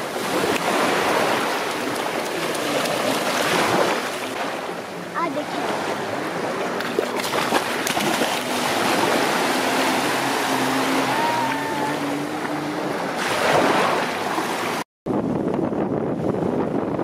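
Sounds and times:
surf lapping: 0.0s - 14.8s
children splashing in water: 0.4s - 4.2s, 6.8s - 12.6s.

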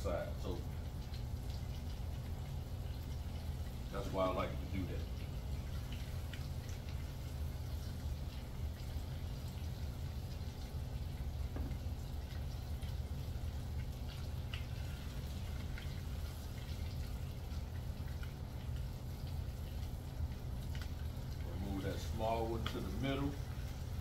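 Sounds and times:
steady low hum: 0.0s - 24.0s
chicken sizzling in a pan: 12.6s - 24.0s.

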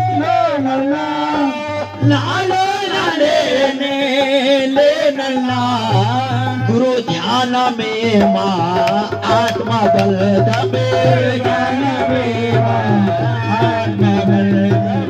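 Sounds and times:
man singing: 0.0s - 15.0s.

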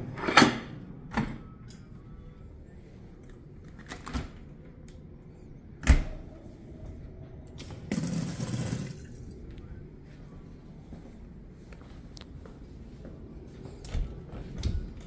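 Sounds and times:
water running into metal sink: 7.7s - 9.2s.

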